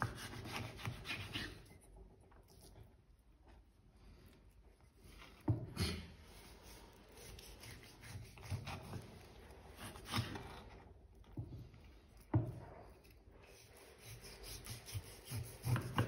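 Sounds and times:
knife scraping through crust: 0:00.0 - 0:01.9, 0:05.8 - 0:10.9, 0:12.2 - 0:16.0.

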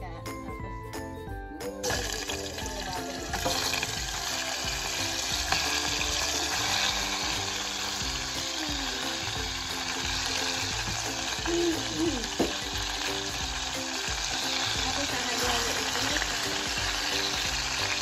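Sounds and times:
pork sizzling in hot oil: 0:01.0 - 0:18.0.

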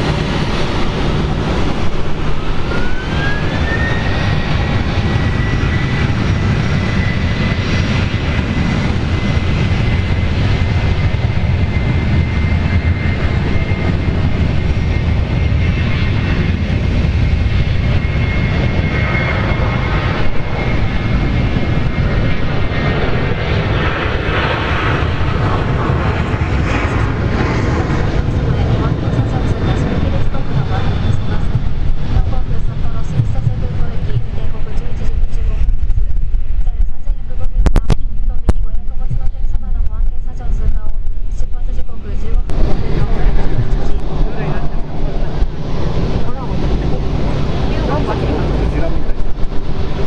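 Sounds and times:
jet engines rumbling and whining: 0:00.0 - 0:50.0.

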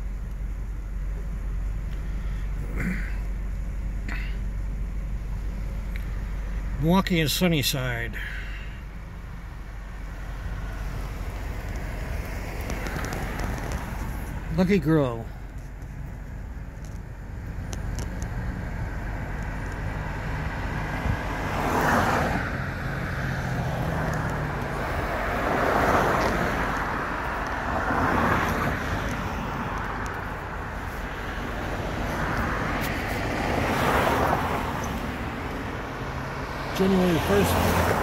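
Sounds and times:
cars passing: 0:00.0 - 0:38.0
steady low traffic rumble: 0:00.0 - 0:38.0.

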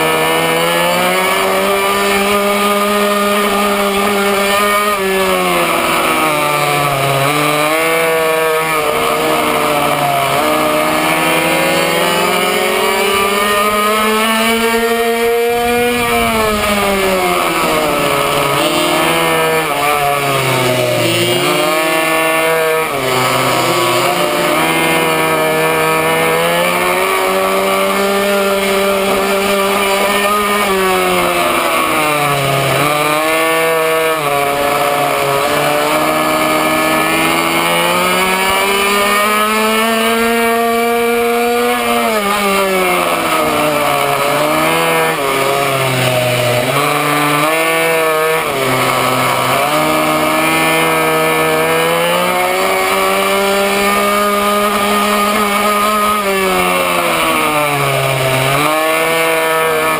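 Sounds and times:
small two-stroke engine revving: 0:00.0 - 0:59.9.

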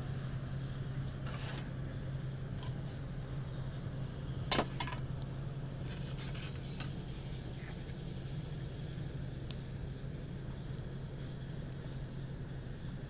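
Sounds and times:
steady low hum: 0:00.0 - 0:13.0
metal mugs and pot handled: 0:04.5 - 0:05.1.

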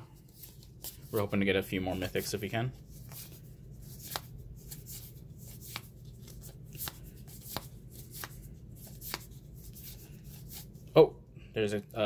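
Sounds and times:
low steady hum: 0:00.0 - 0:12.0
cards being flipped: 0:00.2 - 0:01.3, 0:02.8 - 0:10.9.

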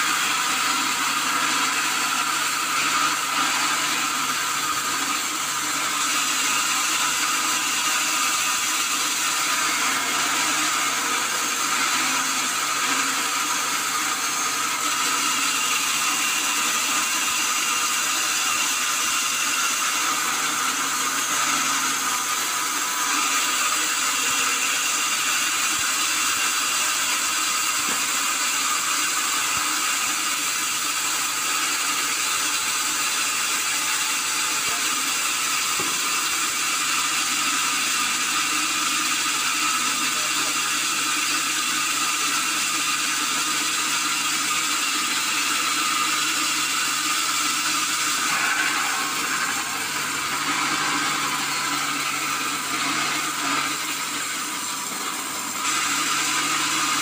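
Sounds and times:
band saw ripping log: 0:44.6 - 0:57.0.

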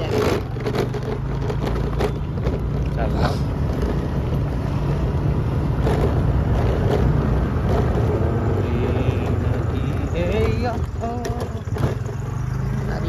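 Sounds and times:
motorbike engine running: 0:00.0 - 0:13.0.

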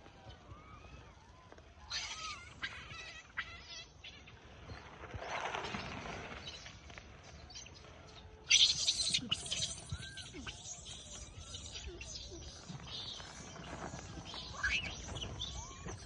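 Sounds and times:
monkey call: 0:01.8 - 0:04.4, 0:08.5 - 0:16.0
rustling and scuffling: 0:12.4 - 0:16.0.

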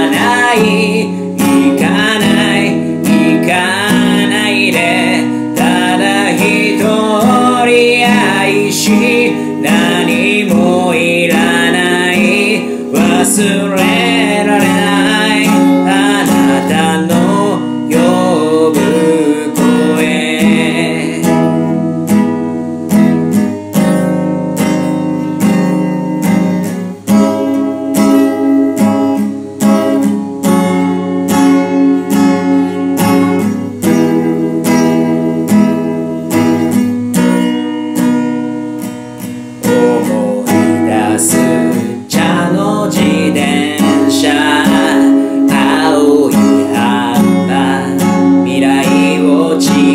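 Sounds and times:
man singing: 0:00.0 - 0:21.8, 0:39.6 - 0:49.9
acoustic guitar strumming: 0:00.0 - 0:49.9.

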